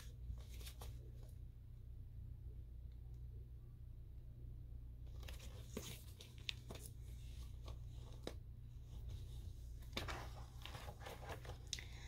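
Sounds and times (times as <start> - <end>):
steady low hum: 0.0 - 12.0
paper pages turning: 9.8 - 11.7.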